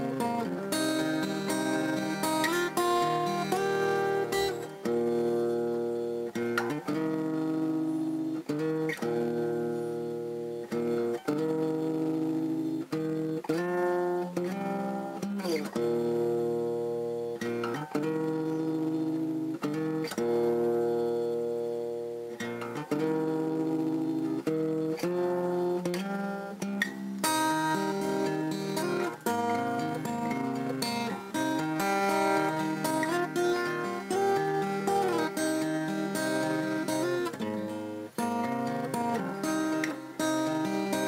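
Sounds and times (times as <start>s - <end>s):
acoustic guitar strumming chords: 0.0s - 41.0s.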